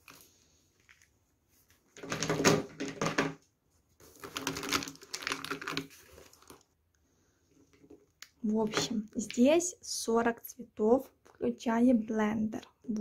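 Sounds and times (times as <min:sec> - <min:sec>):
plastic markers clattering: 0:01.9 - 0:03.4, 0:04.0 - 0:06.6.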